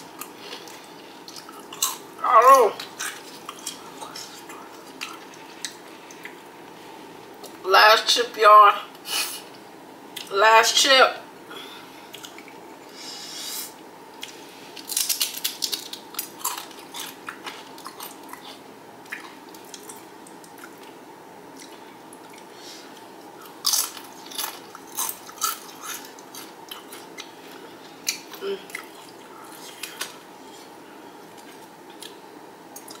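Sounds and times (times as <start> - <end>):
soft chewing: 0.1 - 2.1, 2.8 - 7.6, 12.0 - 13.0, 14.2 - 33.0
crunching tortilla chip: 14.2 - 20.8, 23.5 - 27.1.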